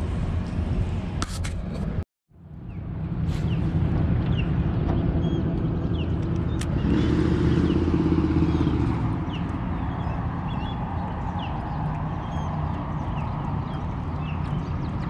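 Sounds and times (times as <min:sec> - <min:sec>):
birds chirping: 0:02.6 - 0:15.0
boat motor running: 0:03.8 - 0:15.0.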